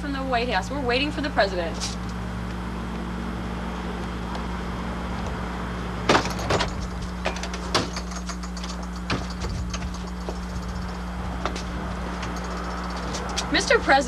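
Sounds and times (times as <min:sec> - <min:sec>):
steady low hum: 0:00.0 - 0:14.0
metal door clunking open: 0:06.0 - 0:11.6.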